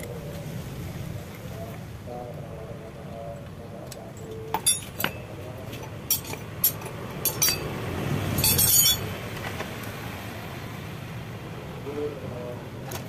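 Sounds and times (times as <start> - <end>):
tools jangling together: 4.2 - 7.7, 8.4 - 9.1
wrenches clinking on concrete: 4.2 - 7.8, 8.4 - 9.1.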